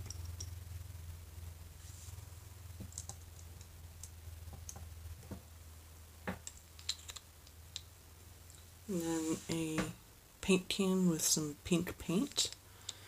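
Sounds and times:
steady low hum: 0.0s - 13.0s
plastic pieces clicking: 6.4s - 7.6s.

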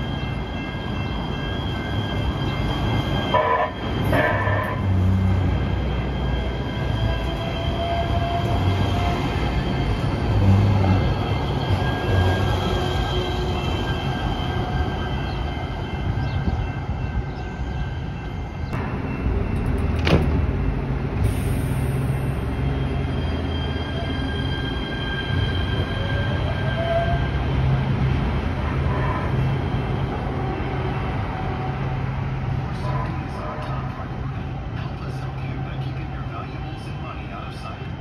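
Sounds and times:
faint train whine: 0.0s - 38.0s
train rumbling on rails: 0.0s - 38.0s.

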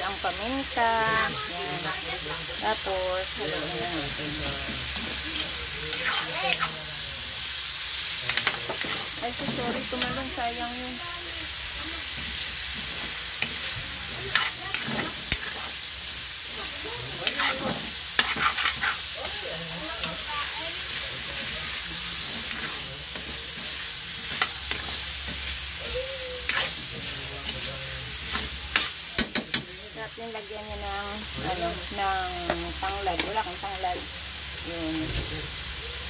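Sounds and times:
food sizzling in a wok: 0.0s - 36.0s
metal spatula scraping a pan: 4.8s - 6.8s, 12.1s - 15.8s, 17.1s - 19.2s, 20.0s - 25.8s, 26.4s - 29.6s.

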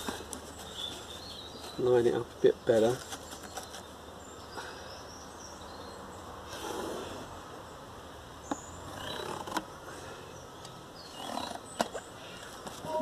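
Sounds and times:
cardboard rustling: 0.0s - 2.0s, 2.7s - 3.9s.

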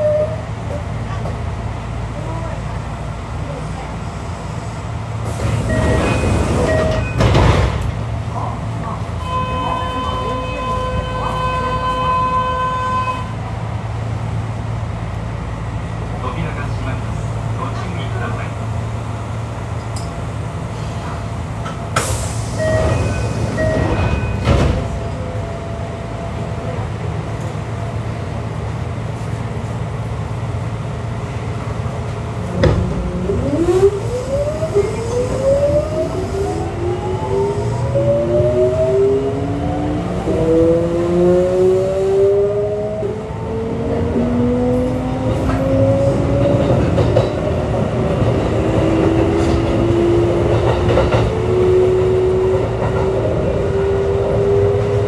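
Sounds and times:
train inverter whining: 32.4s - 55.0s.

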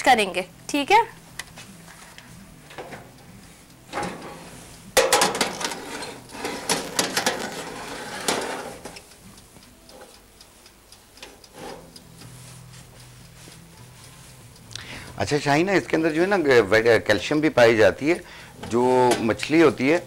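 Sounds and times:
cookware clattering: 5.0s - 8.7s
light ticks: 8.9s - 17.6s.

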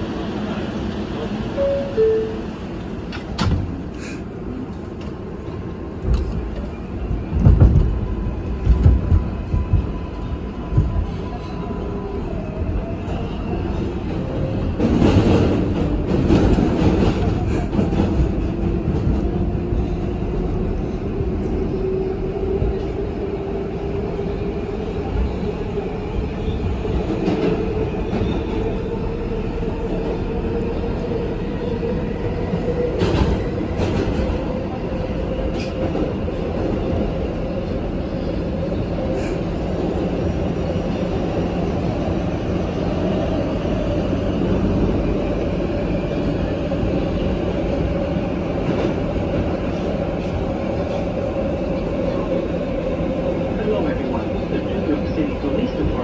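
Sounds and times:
subway train rumbling: 0.0s - 56.0s.

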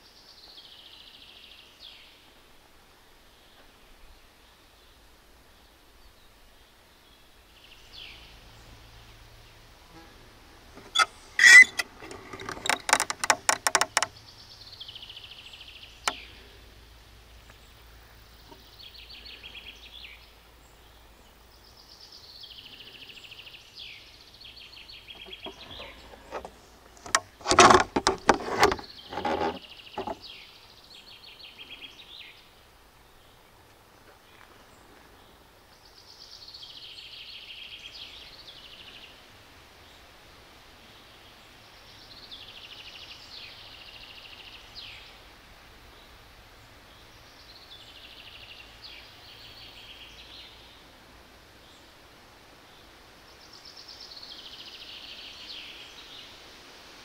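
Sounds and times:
songbirds singing: 0.0s - 56.7s.

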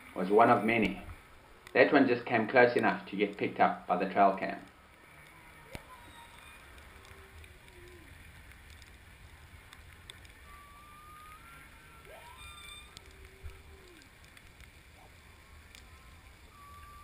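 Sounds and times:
faint whistle-like tones: 0.0s - 1.1s, 5.1s - 8.3s, 10.0s - 17.0s
scattered clicks: 4.6s - 16.9s.

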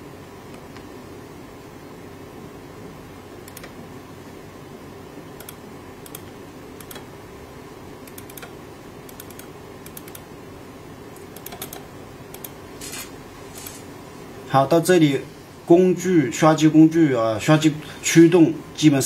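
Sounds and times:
low background hum: 0.0s - 19.0s
computer mouse clicking: 3.4s - 3.8s, 5.4s - 7.1s, 8.0s - 10.2s, 11.2s - 13.8s.

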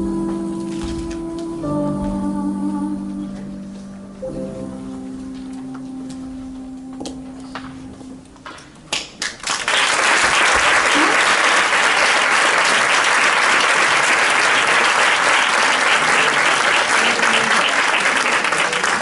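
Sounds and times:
audience applause: 8.9s - 19.0s.

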